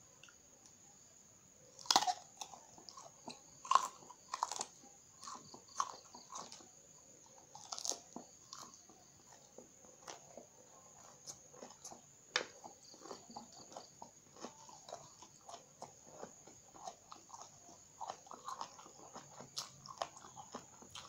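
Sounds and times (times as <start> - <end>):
crunchy eggplant bites: 1.8 - 6.8, 7.5 - 10.3
chewing crunches: 1.8 - 21.0.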